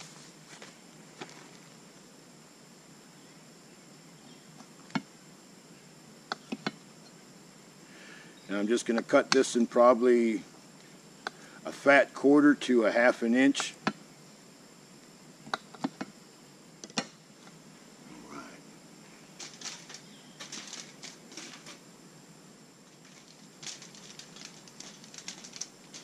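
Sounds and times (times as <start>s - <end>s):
aluminium foil crinkling: 19.4s - 21.8s, 22.8s - 26.0s.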